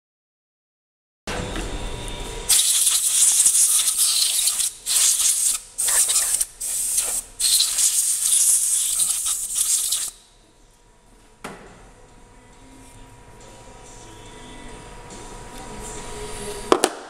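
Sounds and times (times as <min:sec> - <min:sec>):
compressed air blow gun hissing: 0:02.5 - 0:10.2.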